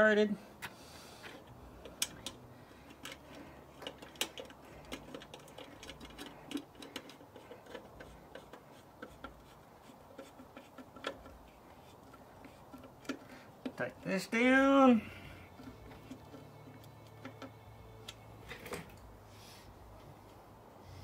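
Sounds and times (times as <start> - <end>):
screwdriver clicks and ticks: 1.8 - 9.4.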